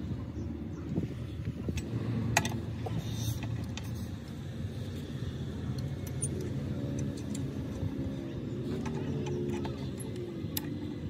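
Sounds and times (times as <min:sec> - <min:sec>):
steady low rumble: 0:00.0 - 0:11.0
metal wrench clinking: 0:05.7 - 0:07.8.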